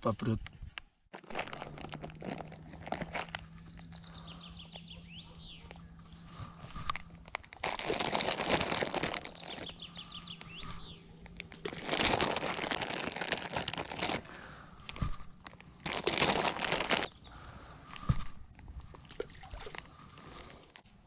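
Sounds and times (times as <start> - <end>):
plastic packet crinkling: 1.1 - 4.0, 6.8 - 17.2
songbird singing: 2.2 - 7.3, 9.2 - 11.6, 17.0 - 17.9.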